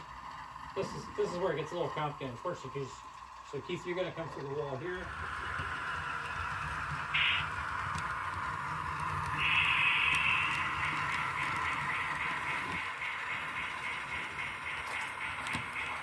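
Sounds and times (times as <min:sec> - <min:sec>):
model locomotive hiss and hum: 0:00.0 - 0:16.0
pulsing ringing tone: 0:09.4 - 0:16.0.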